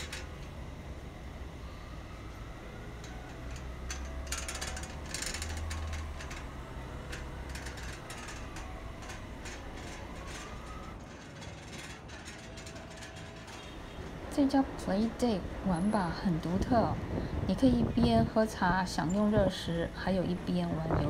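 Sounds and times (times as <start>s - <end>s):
clicks and clattering knocks: 0.0s - 0.6s, 3.0s - 14.2s
low traffic rumble: 0.0s - 21.0s.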